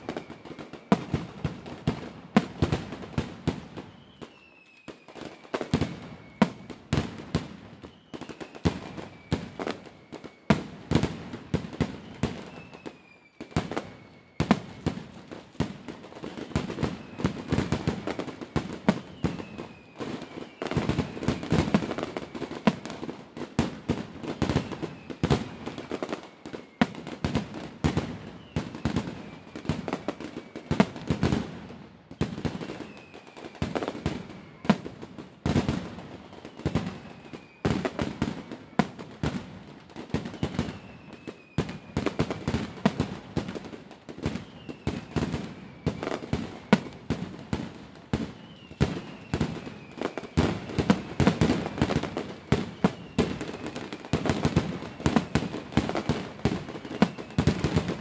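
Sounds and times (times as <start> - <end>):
fireworks bangs and crackling: 0.0 - 58.0
fireworks booms: 26.8 - 58.0.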